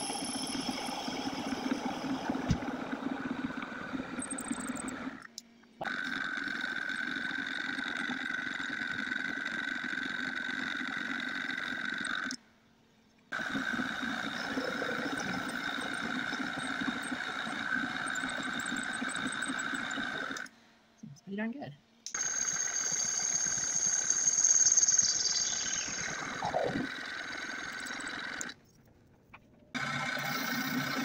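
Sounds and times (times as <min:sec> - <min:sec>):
metal lathe whining: 0:22.1 - 0:28.6.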